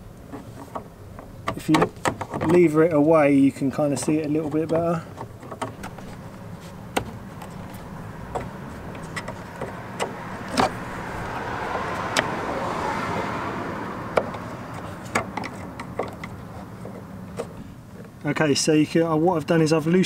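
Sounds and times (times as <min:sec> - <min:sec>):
background rumble: 0:00.0 - 0:18.4.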